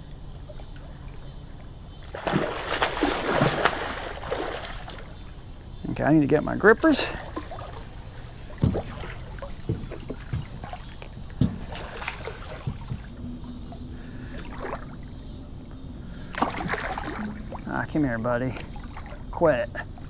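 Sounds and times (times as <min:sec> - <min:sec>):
insects droning: 0:00.0 - 0:20.0
water sloshing against dock: 0:00.0 - 0:20.0
knocks and thumps on dock: 0:07.1 - 0:15.0, 0:16.3 - 0:20.0.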